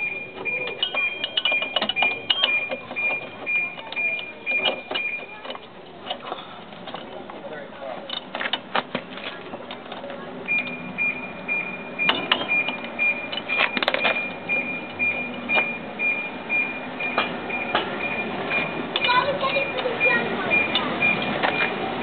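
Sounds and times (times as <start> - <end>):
high-pitched beep: 0.0 - 5.4, 10.5 - 21.8.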